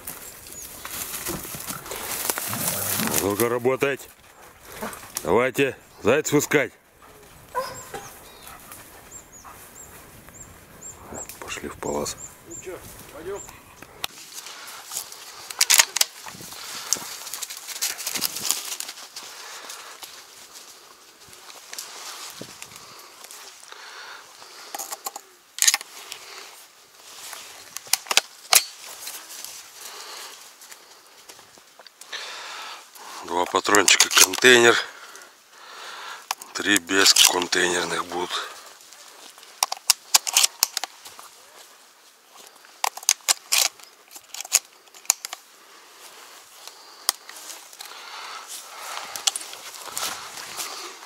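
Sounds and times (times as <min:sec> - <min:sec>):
footsteps walking: 0:00.0 - 0:05.2, 0:45.7 - 0:51.0
dry leaves rustling underfoot: 0:00.0 - 0:05.4, 0:14.1 - 0:24.7, 0:25.8 - 0:32.4, 0:36.4 - 0:51.0
shotgun cartridges clicking in: 0:24.7 - 0:25.9, 0:42.8 - 0:45.4.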